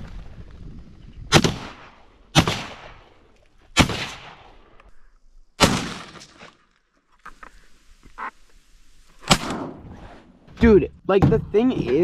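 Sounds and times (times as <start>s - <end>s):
shotgun blasts: 1.3s - 3.1s, 3.7s - 4.6s, 5.6s - 6.4s, 9.2s - 9.9s.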